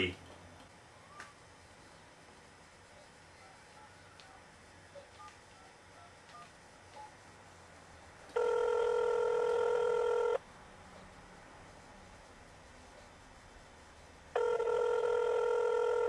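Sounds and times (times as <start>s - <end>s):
telephone ringback tone: 8.4s - 10.4s, 14.4s - 16.0s.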